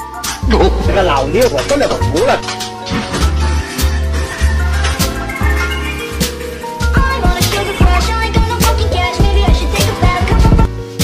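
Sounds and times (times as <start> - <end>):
background music with deep bass: 0.0 - 11.0
drum beat: 6.9 - 10.7.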